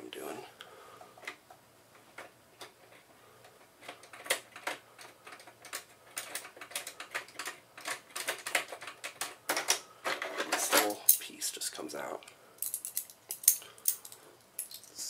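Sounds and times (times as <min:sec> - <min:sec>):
small metal clicks and scrapes: 0:02.2 - 0:11.3, 0:12.6 - 0:14.9.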